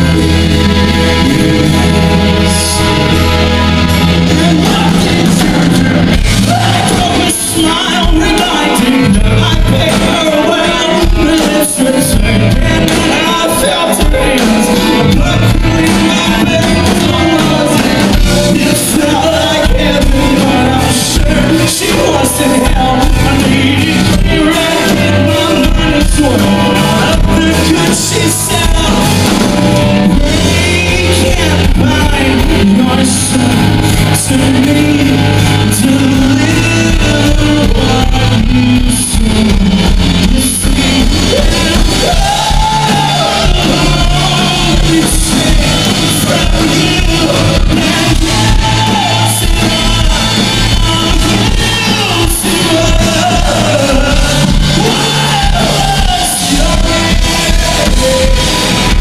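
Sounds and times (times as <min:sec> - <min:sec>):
electric guitars: 0:00.0 - 0:59.0
lead singer singing: 0:00.0 - 0:59.0
live rock band: 0:00.0 - 0:59.0.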